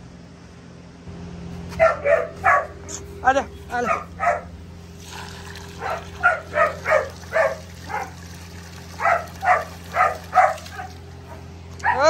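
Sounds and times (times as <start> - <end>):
steady low hum: 0.0 - 12.0
dog yipping and whining: 1.8 - 2.8, 5.8 - 8.1, 9.0 - 12.0.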